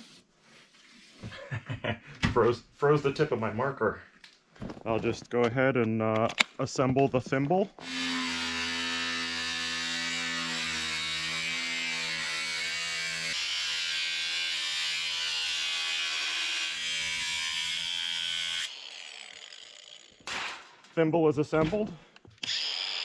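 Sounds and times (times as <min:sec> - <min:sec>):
angle grinder cutting sheet metal: 0:07.8 - 0:20.6, 0:22.4 - 0:23.0.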